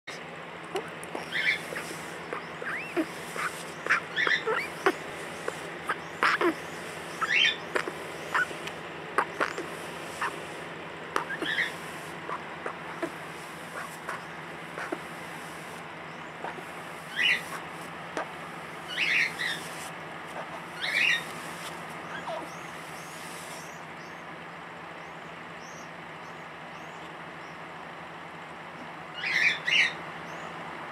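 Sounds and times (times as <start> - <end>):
young crow squeaky calls: 0.7 - 23.8.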